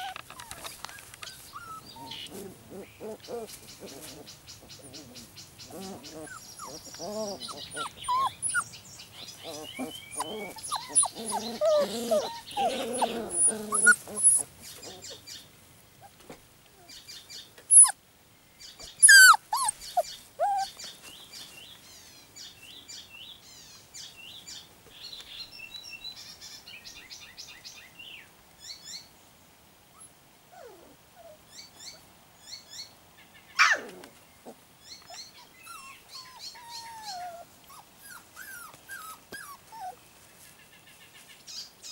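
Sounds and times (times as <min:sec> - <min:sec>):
puppies growling and whining: 0:00.0 - 0:15.2, 0:17.7 - 0:18.0, 0:18.9 - 0:20.8, 0:30.5 - 0:31.4, 0:33.6 - 0:40.0
small birds chirping: 0:00.0 - 0:16.2, 0:16.8 - 0:29.3, 0:31.5 - 0:41.9
puppy yelps: 0:05.7 - 0:08.7, 0:09.4 - 0:15.1, 0:17.7 - 0:18.0, 0:19.0 - 0:20.7, 0:33.6 - 0:34.0, 0:35.1 - 0:40.0.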